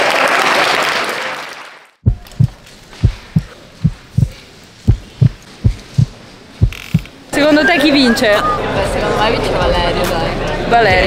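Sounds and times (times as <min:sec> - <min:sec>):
applause: 0:00.0 - 0:02.0
heartbeat thumps: 0:02.0 - 0:07.1.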